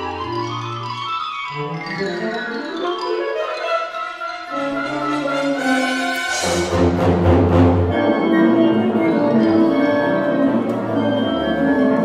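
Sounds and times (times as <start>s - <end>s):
wind ensemble playing: 0.0s - 12.0s.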